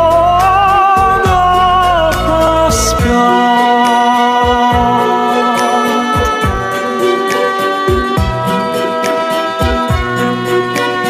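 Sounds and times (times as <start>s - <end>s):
low drum beats: 0.0s - 5.1s
pop ballad chord: 0.0s - 8.5s.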